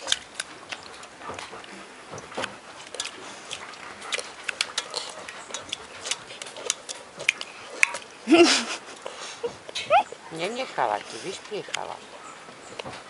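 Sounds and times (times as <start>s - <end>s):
puppy cry rising in pitch: 9.8s - 10.2s.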